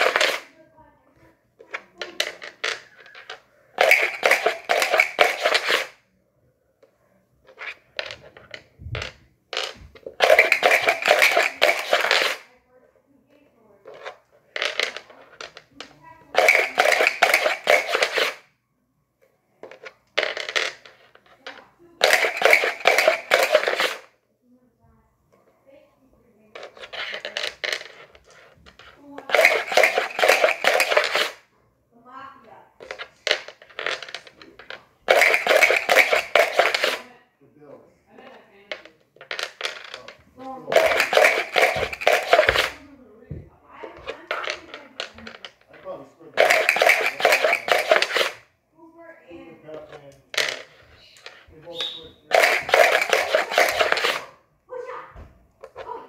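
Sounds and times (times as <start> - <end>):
dice clicks on wooden floor: 0.0 - 0.5, 1.7 - 6.0, 7.5 - 12.5, 13.9 - 18.4, 19.6 - 24.1, 26.5 - 31.4, 32.8 - 37.1, 38.2 - 48.5, 49.7 - 54.3
dice rattling in plastic cup: 0.0 - 0.5, 1.7 - 6.0, 7.5 - 12.5, 13.9 - 18.4, 19.6 - 24.1, 26.6 - 31.4, 32.8 - 37.0, 38.7 - 42.8, 44.0 - 48.5, 50.3 - 54.3.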